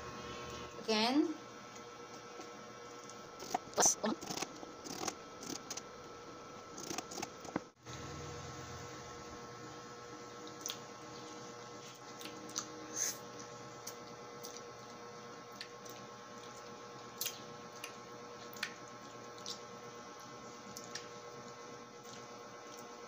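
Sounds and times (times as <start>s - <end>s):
faint steady hum: 0.0s - 23.0s
wet biting and slurping: 3.4s - 5.8s, 6.8s - 7.6s.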